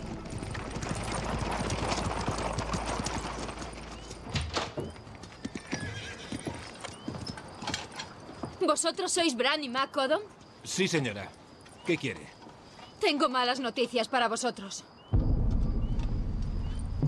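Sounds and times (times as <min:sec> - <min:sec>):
buggy wheels rumbling: 0:00.0 - 0:08.9
horse hooves clip-clopping: 0:00.0 - 0:09.0.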